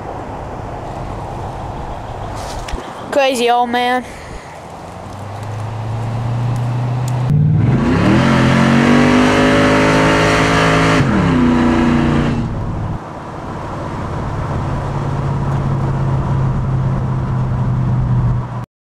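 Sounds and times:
car engine revving: 4.3s - 18.6s.

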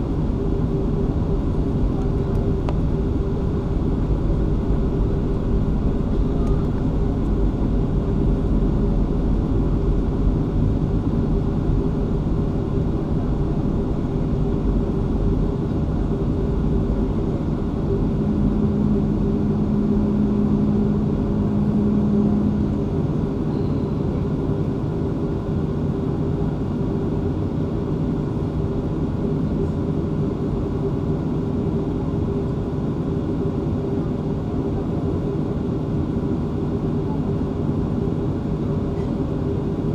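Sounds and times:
low steady tone: 0.0s - 24.7s
jet engines rumbling in cabin: 0.0s - 39.9s.

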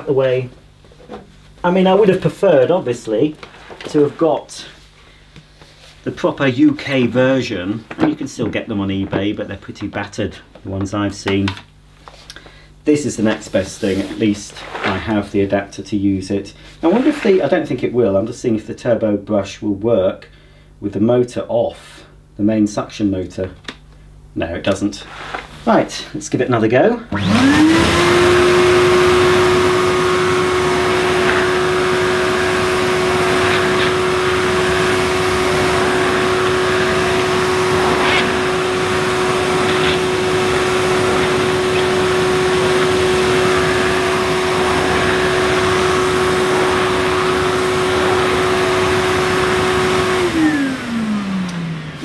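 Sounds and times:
vacuum cleaner running: 16.8s - 17.5s, 27.1s - 52.0s
vacuum head brushing over carpet: 27.2s - 52.0s.

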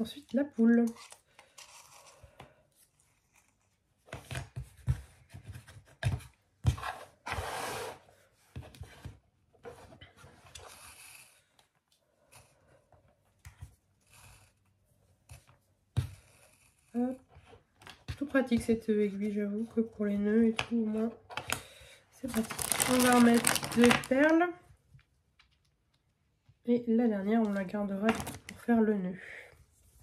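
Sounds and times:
cord scratching through: 22.3s - 24.1s.

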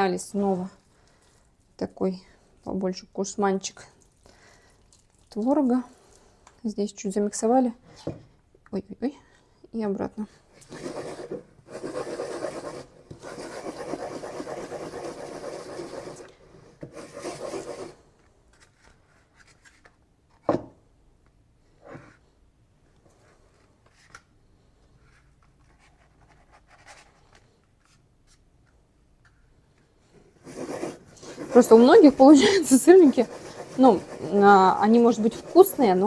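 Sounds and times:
dough rubbing in a mug: 10.6s - 16.3s, 30.4s - 36.0s.

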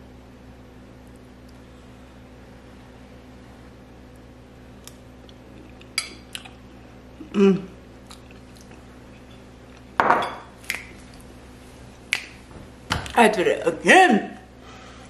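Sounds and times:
person chewing food: 4.8s - 10.0s
person humming: 7.2s - 7.8s.

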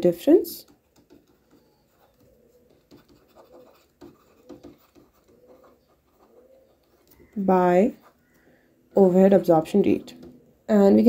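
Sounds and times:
stylus tapping on tablet screen: 0.6s - 7.5s.

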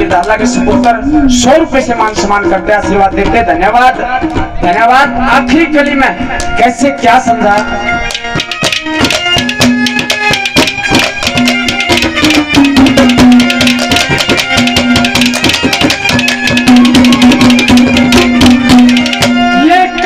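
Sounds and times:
melody instrument long notes: 3.9s - 20.0s
hand drum fast rhythm: 7.5s - 20.0s.

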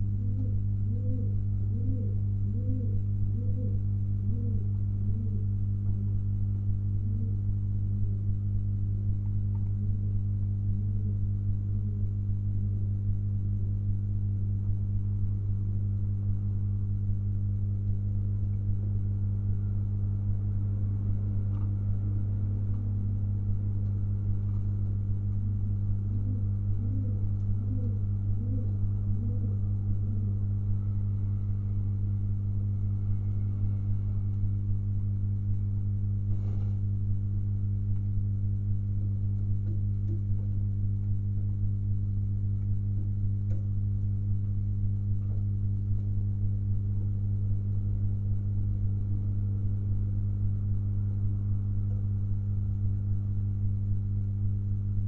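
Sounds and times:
pigeons cooing: 0.0s - 5.5s, 25.6s - 30.4s
low electrical hum: 0.0s - 55.0s.

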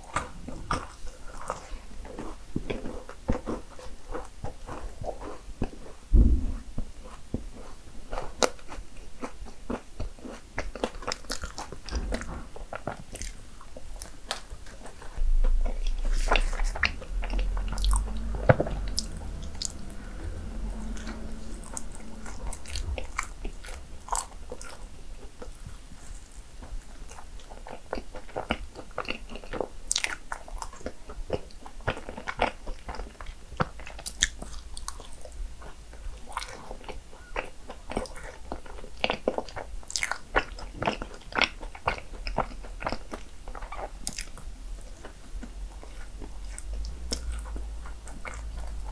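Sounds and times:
chewing and crunching: 0.0s - 6.1s, 7.0s - 48.9s
low thuds: 6.1s - 7.0s, 15.0s - 25.7s.

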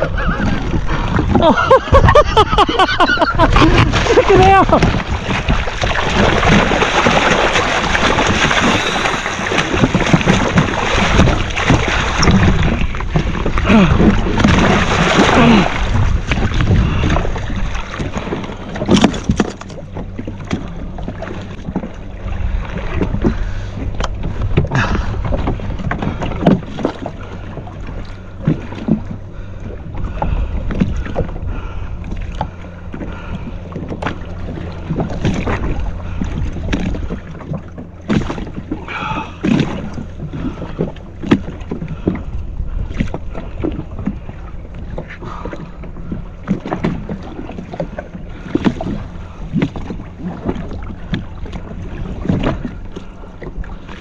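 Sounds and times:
hull knocking and splashing: 0.0s - 54.0s
jet ski engine humming: 0.0s - 54.0s.

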